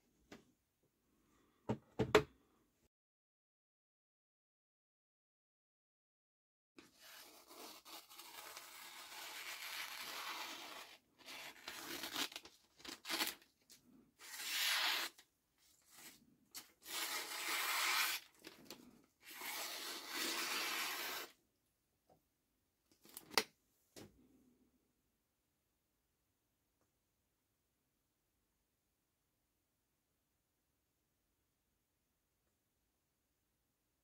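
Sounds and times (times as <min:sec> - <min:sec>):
knife slicing paper: 0:06.9 - 0:13.4, 0:14.2 - 0:15.2, 0:15.8 - 0:21.4.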